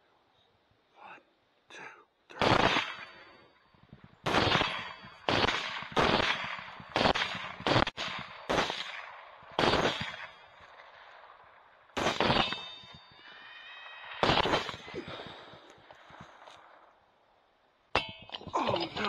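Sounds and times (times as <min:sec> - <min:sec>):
rifle shots with echo: 0:02.4 - 0:03.4, 0:04.2 - 0:16.9.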